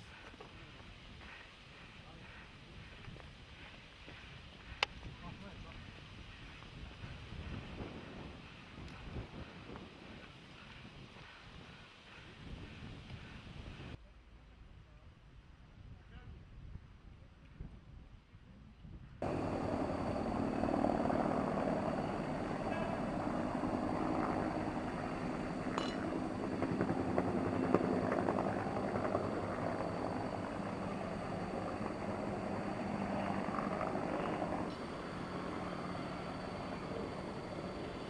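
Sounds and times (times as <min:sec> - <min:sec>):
helicopter rotor and engine: 0:19.2 - 0:38.0.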